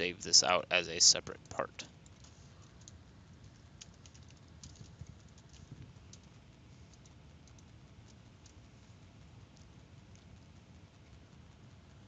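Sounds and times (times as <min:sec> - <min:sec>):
low background hum and hiss: 0:00.0 - 0:12.0
computer keyboard typing: 0:02.0 - 0:08.6.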